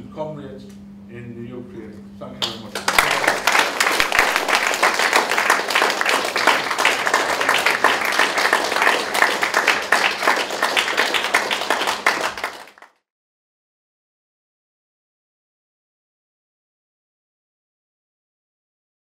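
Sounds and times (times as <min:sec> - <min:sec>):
audience applauding: 0:02.4 - 0:13.0.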